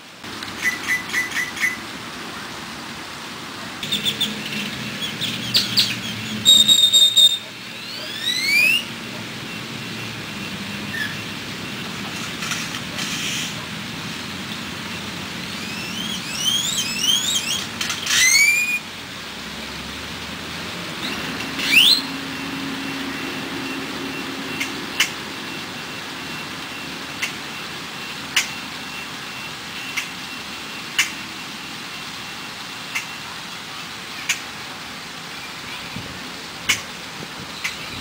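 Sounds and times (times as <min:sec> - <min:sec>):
bird upward-sliding whistles: 0:05.0 - 0:09.0, 0:15.6 - 0:18.9, 0:21.0 - 0:22.2.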